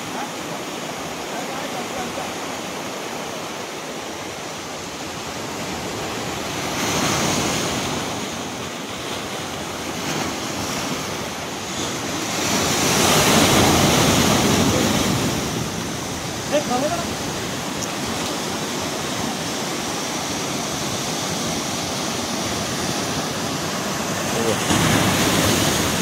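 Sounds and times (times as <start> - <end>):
surf breaking over boulders: 9.2 - 26.0.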